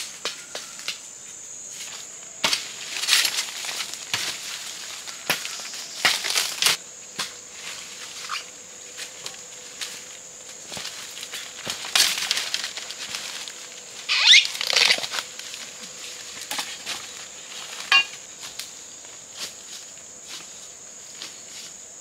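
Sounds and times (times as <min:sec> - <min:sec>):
high-pitched insect drone: 0:00.0 - 0:19.0
bamboo scraping: 0:01.8 - 0:18.3.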